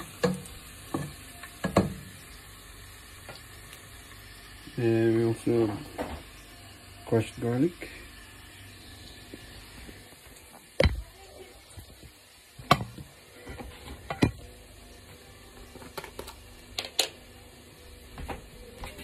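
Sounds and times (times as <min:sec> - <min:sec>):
kitchen knocks and clicks: 0:12.6 - 0:14.4.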